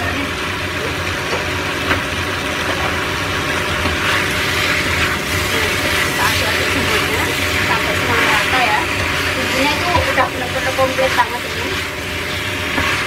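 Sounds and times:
food sizzling in a pan: 0.0 - 13.0
low fan hum: 0.0 - 13.0
stirring and scraping in a pan: 2.6 - 13.0.

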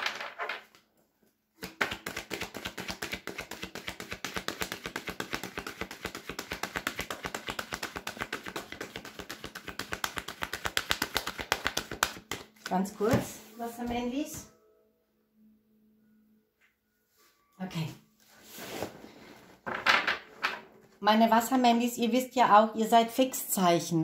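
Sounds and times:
cards being shuffled: 1.6 - 13.2.

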